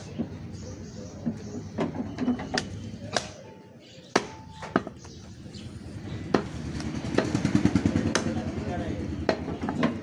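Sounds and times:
cleaver chopping on wooden block: 0:04.1 - 0:05.1, 0:08.1 - 0:08.4.

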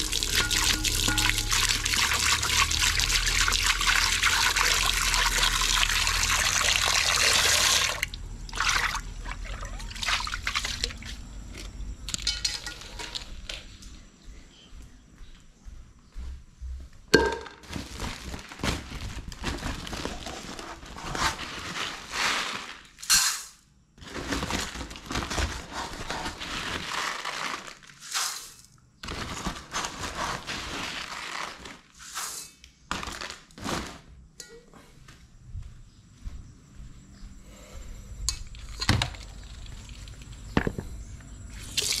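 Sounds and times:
rice pouring into a pot: 0:00.0 - 0:08.0
plastic sack rustling and crinkling: 0:17.6 - 0:23.0, 0:24.0 - 0:32.3, 0:32.9 - 0:34.2.

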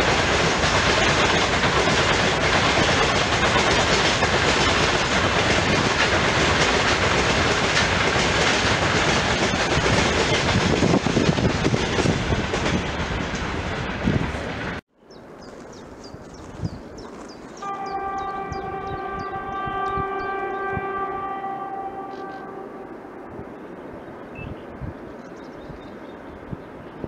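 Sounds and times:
freight train wheels clattering: 0:00.0 - 0:14.8.

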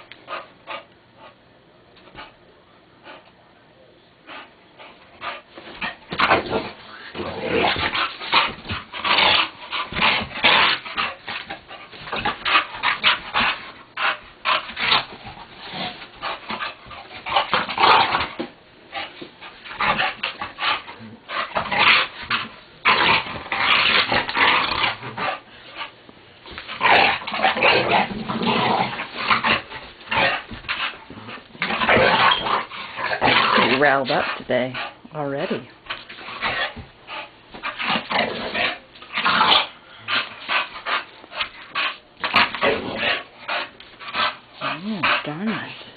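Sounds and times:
dog growling: 0:05.8 - 0:18.4, 0:19.7 - 0:25.4, 0:26.7 - 0:35.6, 0:36.2 - 0:41.0, 0:41.7 - 0:45.9.

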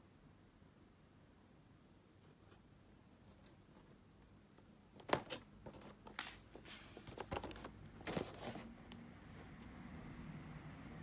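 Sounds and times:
cardboard scraping and rustling: 0:05.0 - 0:08.8.

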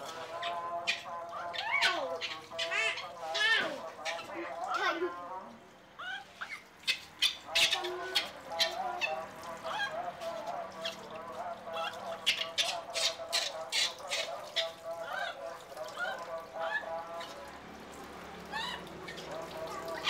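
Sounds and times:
baby monkey squealing: 0:00.4 - 0:04.8, 0:06.0 - 0:09.9, 0:11.8 - 0:15.4, 0:18.5 - 0:19.3
water splashing in metal sink: 0:06.4 - 0:20.0.

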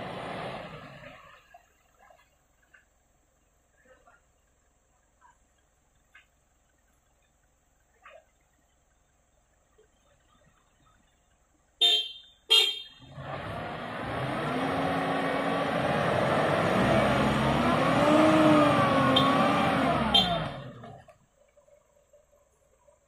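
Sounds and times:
car horn toots: 0:11.8 - 0:13.2, 0:19.0 - 0:20.8
engine revving hard: 0:13.1 - 0:21.0
wheels churning in mud: 0:13.1 - 0:23.0.

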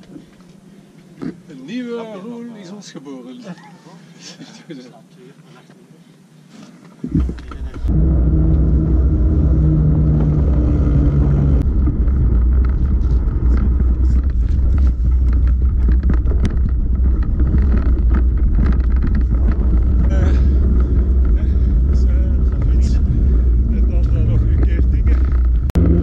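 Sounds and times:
steady low hum: 0:06.0 - 0:25.8
wind rumble on microphone: 0:07.1 - 0:26.0
bike clicks and rattles: 0:11.7 - 0:25.7.

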